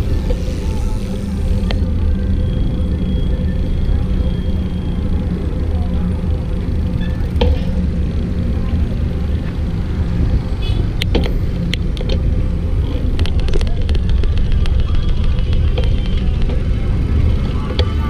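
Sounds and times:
bicycle clicks and rattles: 0.0s - 2.0s, 11.0s - 18.0s
passing vehicles: 0.0s - 18.0s.

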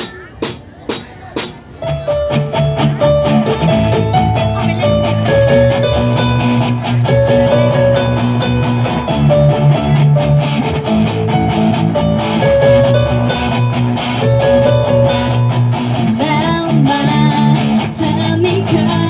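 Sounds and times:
steady drum beat: 0.0s - 1.7s
electric guitar: 1.7s - 19.0s.

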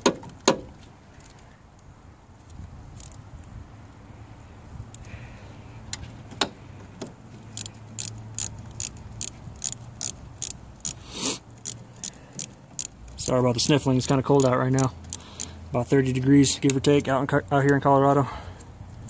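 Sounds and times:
ratchet wrench clicking: 3.0s - 3.2s, 7.4s - 17.1s.

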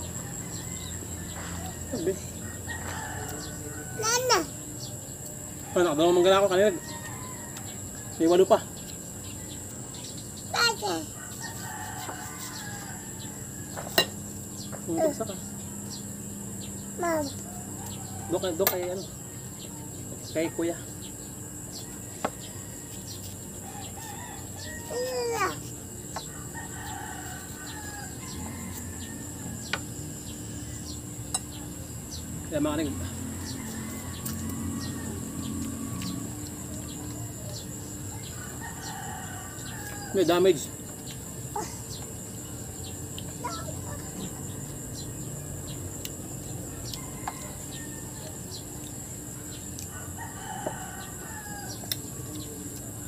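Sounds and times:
rooster crowing: 0.0s - 4.5s, 5.5s - 8.6s, 10.6s - 14.4s, 17.4s - 19.9s, 21.8s - 30.9s, 31.5s - 40.7s, 43.4s - 52.8s
high insect drone: 0.0s - 53.0s
outdoor background noise: 0.0s - 53.0s
small birds chirping: 0.0s - 53.0s.

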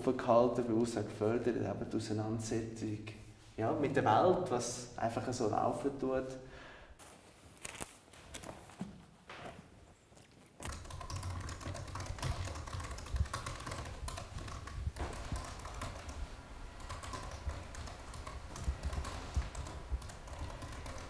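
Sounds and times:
typing on laptop keyboard: 10.6s - 21.0s.

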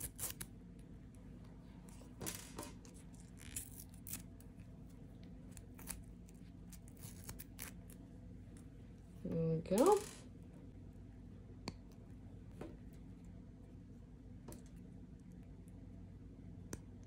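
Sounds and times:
low steady hum: 0.0s - 17.0s
rustling string unwinding from card: 2.9s - 4.6s.

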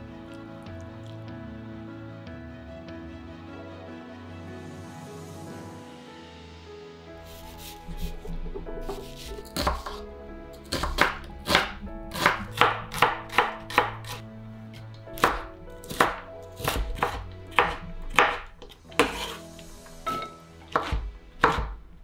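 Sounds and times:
soft background music: 0.0s - 22.0s
knife chopping on wooden board: 7.3s - 10.0s, 10.6s - 14.2s, 15.2s - 19.4s, 20.1s - 21.8s.

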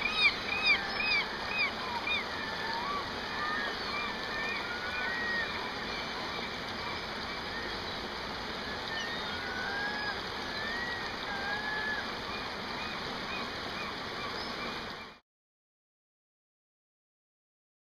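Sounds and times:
gulls calling: 0.0s - 15.2s
river water rushing: 0.0s - 15.2s.

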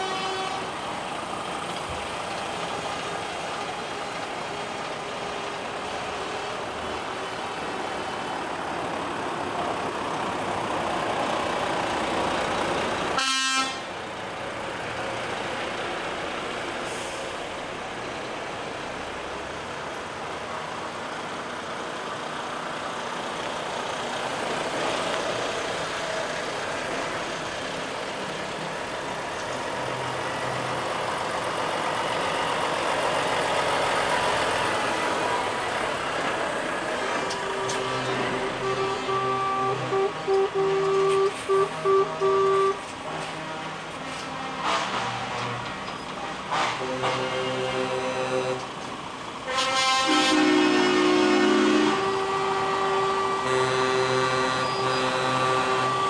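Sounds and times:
truck air horn blast: 0.0s - 0.8s, 13.1s - 13.9s, 37.2s - 48.7s, 49.4s - 56.0s
heavy trucks driving past: 0.0s - 56.0s.

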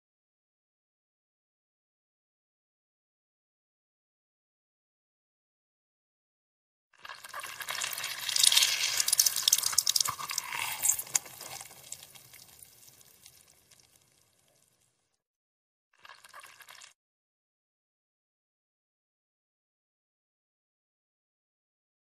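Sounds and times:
juice dripping: 7.0s - 14.9s
orange pulp squelching in hand: 7.4s - 13.5s.

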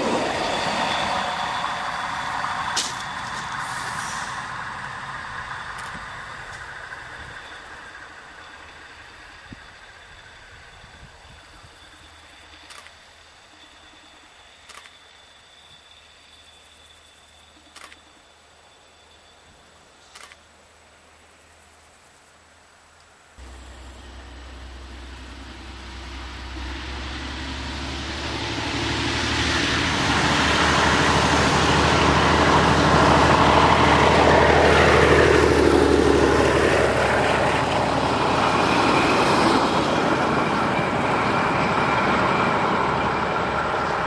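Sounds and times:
diesel locomotive engine passing: 0.0s - 20.0s, 23.4s - 44.0s
train wheels on rails: 0.0s - 20.4s, 23.4s - 44.0s.

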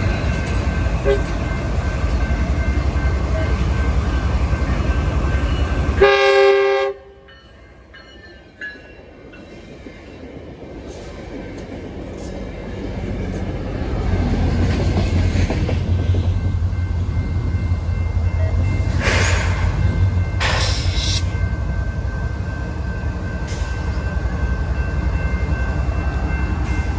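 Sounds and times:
train wheels rumbling on rails: 0.0s - 26.9s
train horn blast: 1.0s - 1.3s, 6.0s - 7.3s.

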